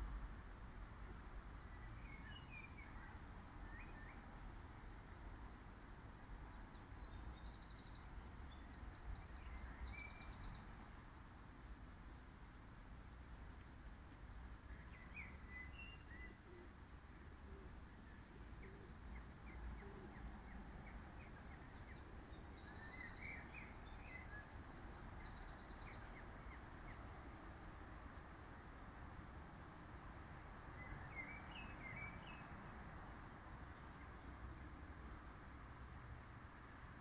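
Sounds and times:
low hiss and rumble: 0.0s - 37.0s
small birds chirping: 0.8s - 4.5s, 6.4s - 12.7s, 13.4s - 29.8s.

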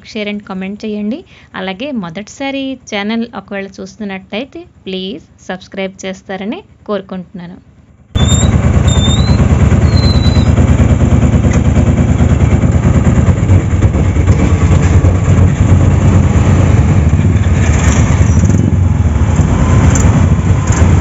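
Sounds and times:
auto-rickshaw engine running: 7.8s - 21.0s
motorcycle engines in traffic: 8.2s - 21.0s.

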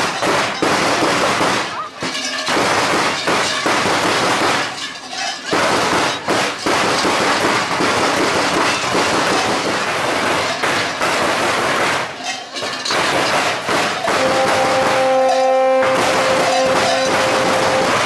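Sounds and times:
large bells clanging: 1.7s - 18.0s.

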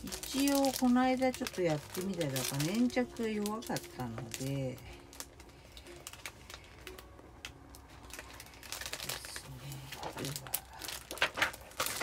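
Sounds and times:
craft materials rustling: 7.8s - 12.0s.

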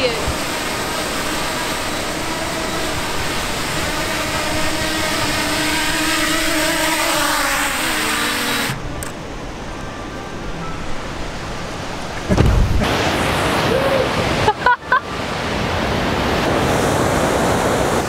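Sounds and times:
drone propellers whining: 0.0s - 10.8s.

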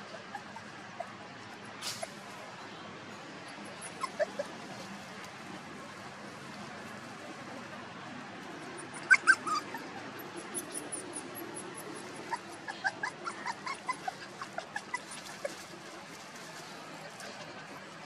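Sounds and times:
puppies whimpering: 3.5s - 4.8s, 8.7s - 15.8s.

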